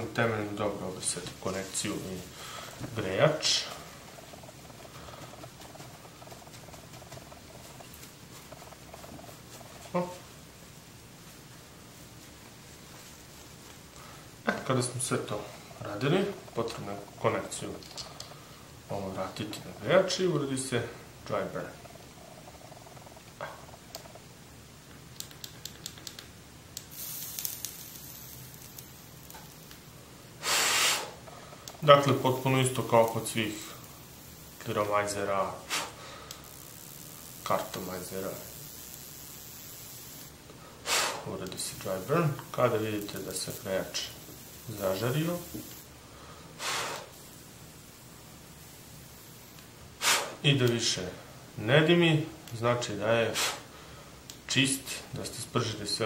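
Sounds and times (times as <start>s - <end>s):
heating coil sizzling: 0.0s - 56.0s
small clicks: 25.1s - 29.8s, 36.2s - 40.3s
loud burst of hiss: 26.9s - 29.6s, 30.3s - 31.2s, 31.8s - 50.6s, 53.2s - 53.9s.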